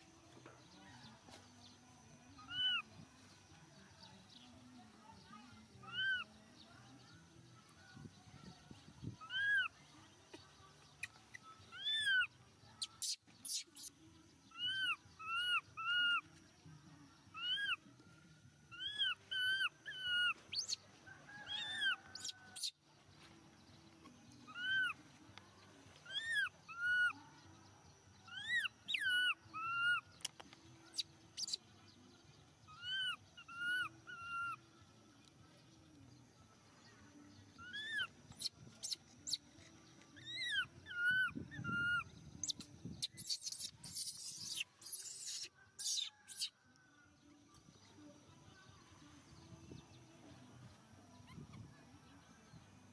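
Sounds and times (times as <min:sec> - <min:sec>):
baby monkey squeaking calls: 0:02.4 - 0:02.9, 0:05.8 - 0:06.3, 0:09.2 - 0:09.8, 0:11.0 - 0:13.9, 0:14.5 - 0:16.3, 0:17.4 - 0:17.8, 0:18.7 - 0:20.8, 0:21.4 - 0:22.8, 0:24.5 - 0:25.0, 0:26.0 - 0:27.2, 0:28.3 - 0:30.1, 0:30.9 - 0:31.6, 0:32.7 - 0:34.6, 0:37.6 - 0:39.4, 0:40.2 - 0:46.6.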